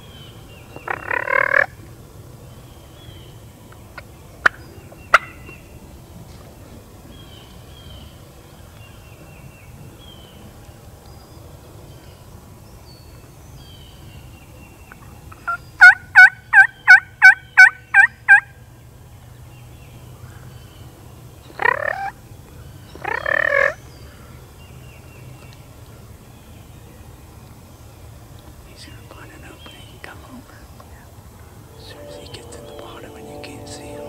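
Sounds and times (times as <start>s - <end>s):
turkey yelps: 21.6s - 22.1s, 23.0s - 23.8s.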